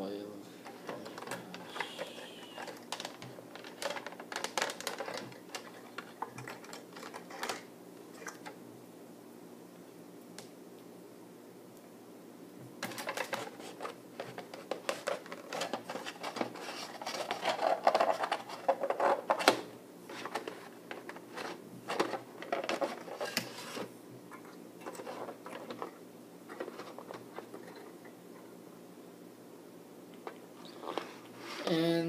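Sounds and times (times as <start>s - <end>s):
wire rustling and clicking: 0.6s - 8.6s.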